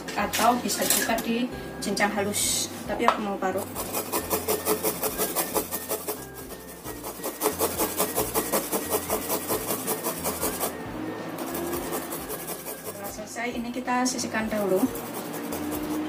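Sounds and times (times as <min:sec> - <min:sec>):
garlic grated on metal grater: 0:03.6 - 0:10.8, 0:11.4 - 0:13.3, 0:14.5 - 0:16.0.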